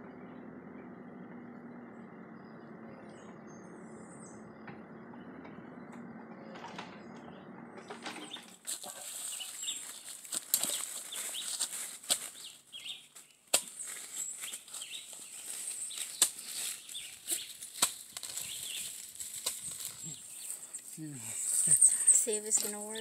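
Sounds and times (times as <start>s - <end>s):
distant diesel engine running: 0.0s - 13.1s
bird chirp: 0.0s - 23.0s
rustling and crackling dry leaves: 7.9s - 23.0s.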